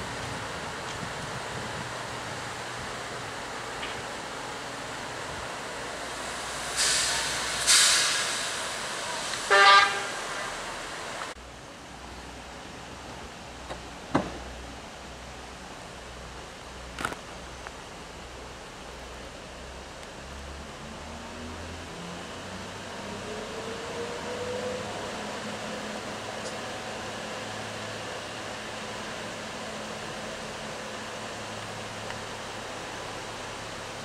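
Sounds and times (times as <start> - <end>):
loud hissing bursts: 6.0 - 11.2
train horn toot: 9.5 - 10.6.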